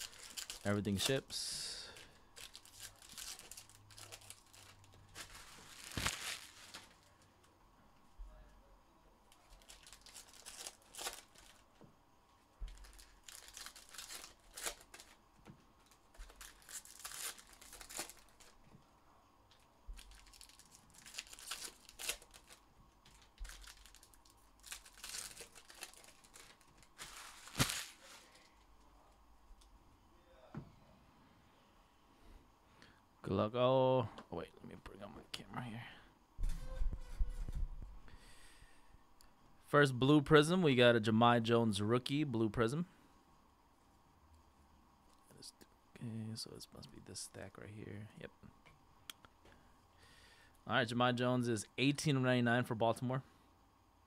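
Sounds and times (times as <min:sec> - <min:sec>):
wrappers tearing and crinkling: 0:00.0 - 0:01.2, 0:01.9 - 0:07.2, 0:09.3 - 0:11.7, 0:12.7 - 0:15.2, 0:15.8 - 0:18.6, 0:20.0 - 0:28.5.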